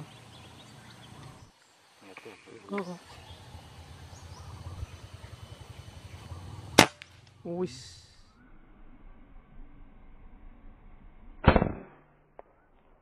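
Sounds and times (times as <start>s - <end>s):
low fast throbbing: 3.2s - 11.6s
air rifle shot: 6.7s - 7.3s, 11.4s - 12.6s.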